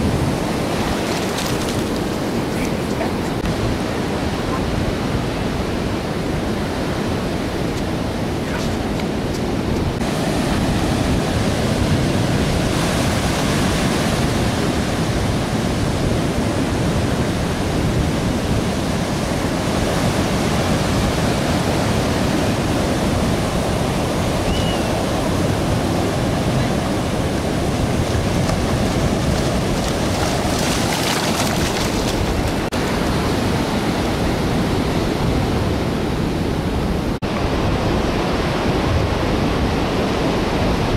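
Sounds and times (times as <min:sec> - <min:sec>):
wind noise on microphone: 0:00.0 - 0:40.9
surf breaking: 0:27.2 - 0:33.5.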